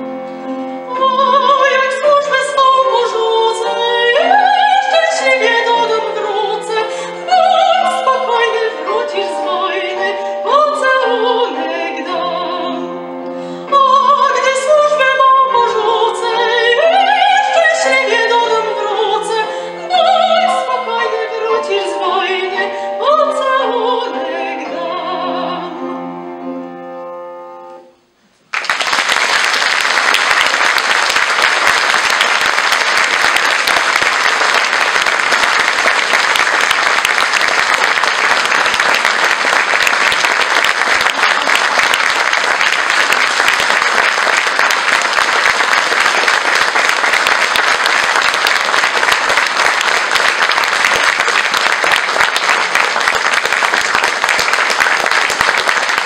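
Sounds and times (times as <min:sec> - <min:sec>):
instrumental accompaniment: 0:00.0 - 0:28.5
audience applause: 0:28.5 - 0:56.0.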